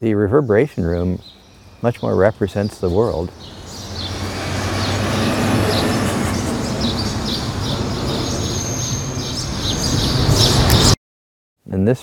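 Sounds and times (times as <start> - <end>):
birds chirping: 0.2 - 11.0
low traffic rumble: 1.3 - 10.9.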